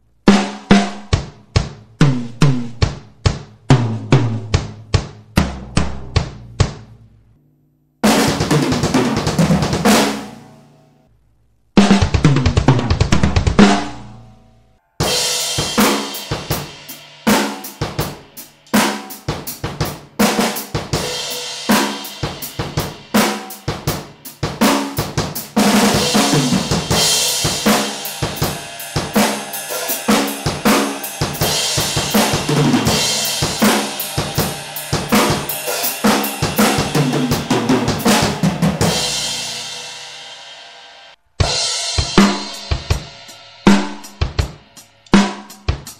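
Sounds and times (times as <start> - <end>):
bass drum: 0.3 - 7.4, 8.0 - 10.6, 11.8 - 14.4, 15.0 - 39.9, 41.4 - 45.9
snare drum: 8.0 - 10.4, 11.8 - 14.1, 15.0 - 39.5, 41.4 - 45.9
cymbals washing: 15.0 - 43.7
hi-hat strokes: 15.2 - 39.2.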